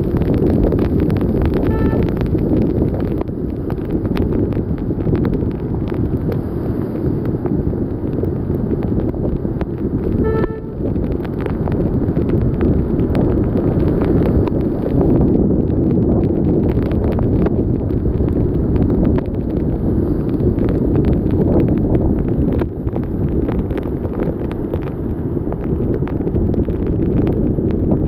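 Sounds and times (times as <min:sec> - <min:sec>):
loud rain: 0:00.0 - 0:28.0
raindrops ticking on microphone: 0:00.0 - 0:28.0
wind buffeting microphone: 0:00.0 - 0:28.0
vehicle horn toots: 0:01.6 - 0:02.3, 0:10.2 - 0:10.8.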